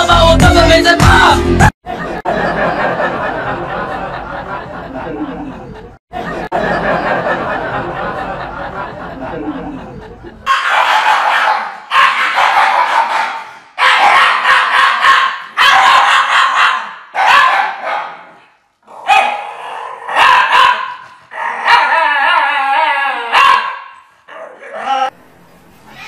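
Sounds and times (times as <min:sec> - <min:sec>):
dog howling: 0:21.4 - 0:23.5.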